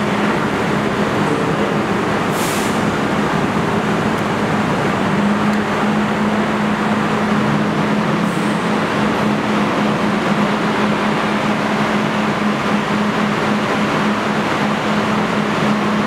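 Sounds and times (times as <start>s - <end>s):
subway train humming: 0.0s - 16.0s
air hissing: 2.2s - 3.2s.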